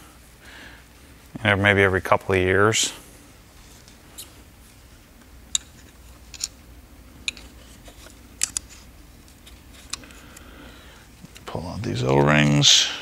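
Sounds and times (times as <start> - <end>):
hand tools clicking on metal: 7.2 - 7.6.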